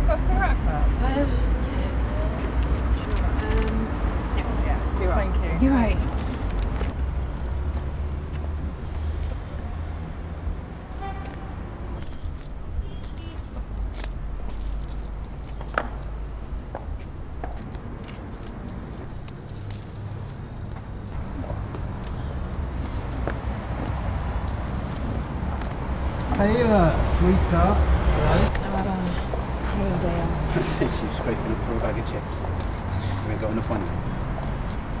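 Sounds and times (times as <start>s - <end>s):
street traffic rumble: 0.0s - 35.0s
small metal objects jingling: 12.0s - 16.1s, 17.6s - 21.2s, 24.4s - 26.8s, 31.8s - 35.0s.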